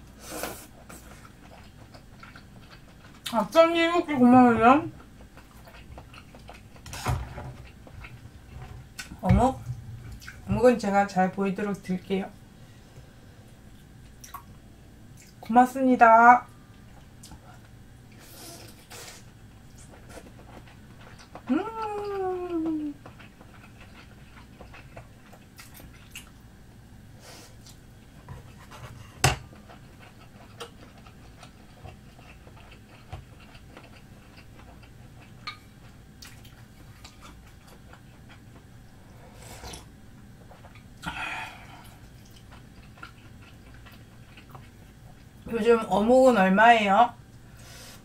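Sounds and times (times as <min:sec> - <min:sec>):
chewing food: 0:00.8 - 0:03.6, 0:04.9 - 0:09.2, 0:19.6 - 0:26.6, 0:27.6 - 0:39.0, 0:39.6 - 0:45.5.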